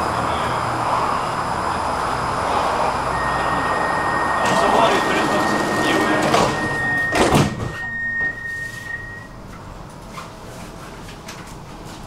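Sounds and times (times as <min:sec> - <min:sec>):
high warning tone: 0:03.0 - 0:09.4
train doors shutting clunk: 0:04.4 - 0:08.4.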